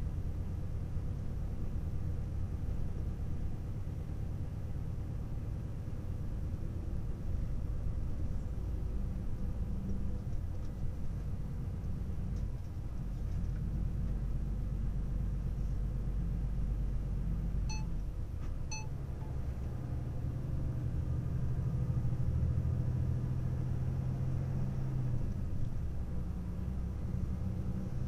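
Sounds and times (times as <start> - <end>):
car engine and road rumble: 0.0 - 28.0
short high beeps: 17.7 - 18.0, 18.7 - 18.9.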